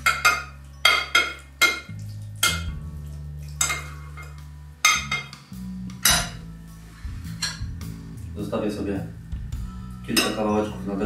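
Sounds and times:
spoon clinking on glass dish: 0.0s - 2.8s, 3.6s - 5.4s, 10.1s - 10.6s
soft background music: 0.0s - 11.0s.

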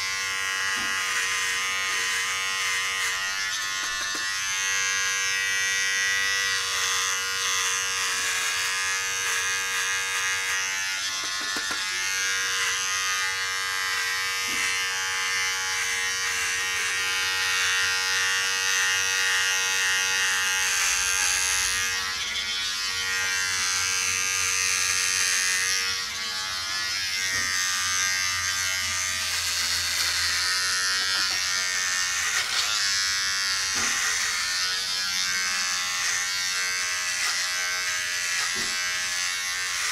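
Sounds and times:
hair trimmer buzzing: 0.0s - 39.9s.

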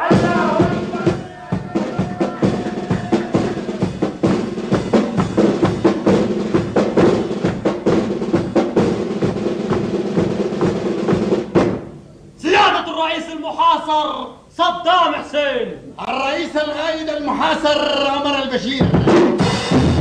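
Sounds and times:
snare and bass drum march: 0.0s - 11.9s, 18.8s - 20.0s.

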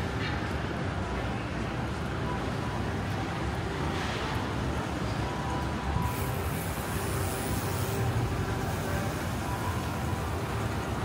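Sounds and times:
traffic rumble: 0.0s - 11.0s
passing vehicle hiss: 3.7s - 11.0s.

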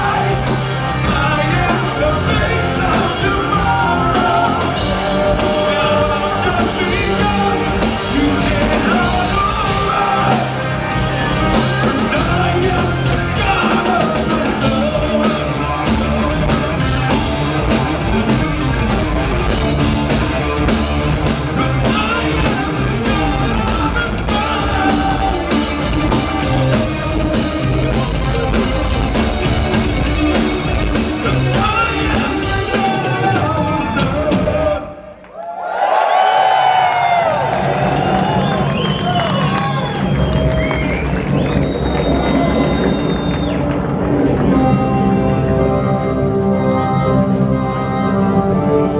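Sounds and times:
person singing: 0.0s - 17.8s, 21.2s - 35.1s
live rock band: 0.0s - 35.1s, 36.4s - 48.9s.

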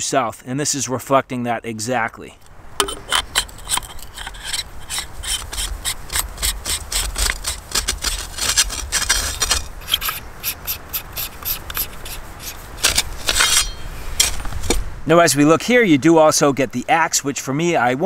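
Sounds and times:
hands rasping on threaded grips: 2.8s - 14.4s.

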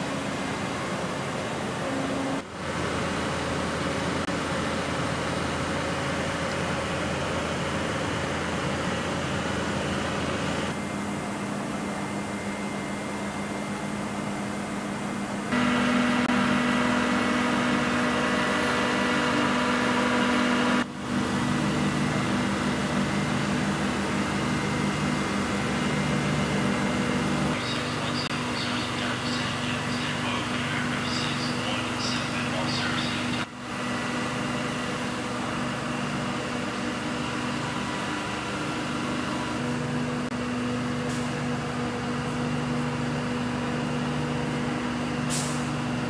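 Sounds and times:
machinery and ventilation hum: 0.0s - 46.0s.

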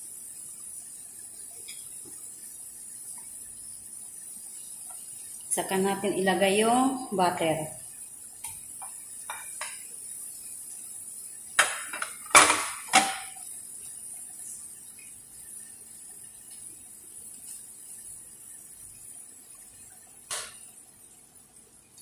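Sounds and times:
faint high hiss: 0.0s - 22.0s
spatula knocking on frying pan: 8.8s - 9.8s, 11.6s - 13.4s.

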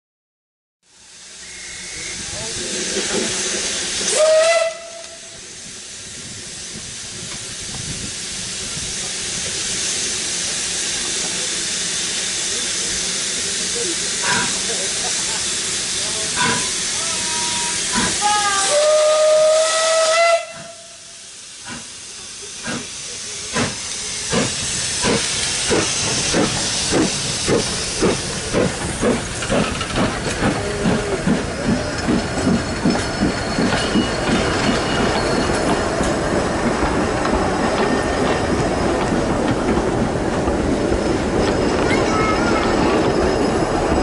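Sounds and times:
steam hissing: 0.9s - 44.0s
locomotive chuffing: 1.2s - 19.7s, 20.5s - 44.0s
steam whistle: 1.3s - 2.3s, 4.1s - 5.4s, 16.4s - 21.2s.

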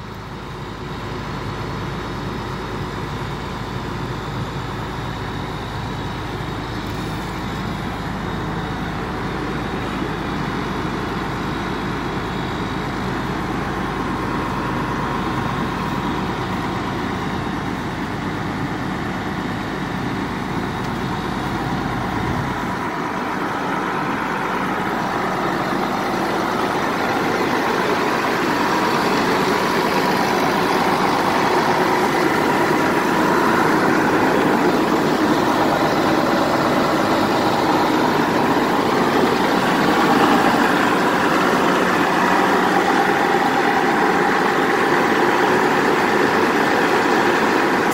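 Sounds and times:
truck engine running: 0.0s - 47.9s.

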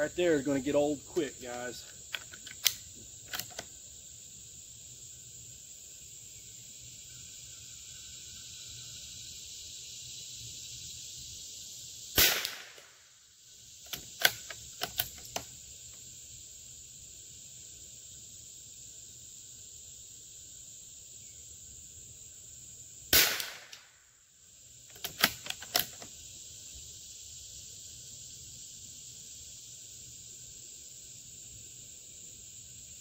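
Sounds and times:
crickets chirping: 0.0s - 33.0s
metallic clicks of rifle bolt: 1.5s - 3.7s, 13.8s - 15.5s, 24.9s - 26.1s
rifle shot: 12.2s - 13.0s, 23.1s - 24.0s.

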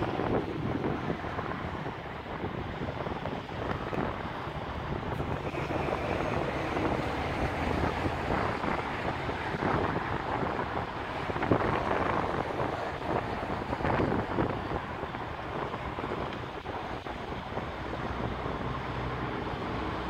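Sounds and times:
diesel truck engine rumbling: 0.0s - 20.0s
wind buffeting microphone: 0.0s - 20.0s.

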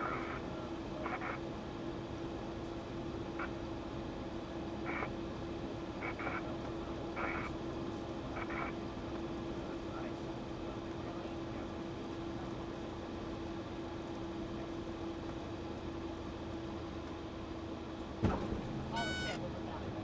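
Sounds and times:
airplane engine droning: 0.0s - 20.0s
muffled voice bursts: 18.9s - 19.8s.

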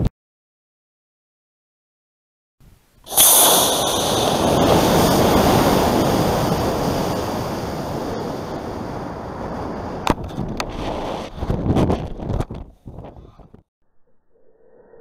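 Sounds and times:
rocket motor whooshing rush: 3.1s - 8.6s.

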